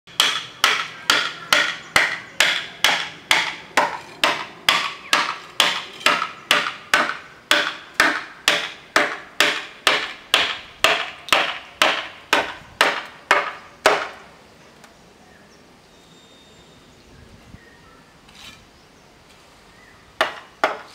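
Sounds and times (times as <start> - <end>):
hammer striking chisel into wood: 0.1 - 14.2, 20.2 - 20.9.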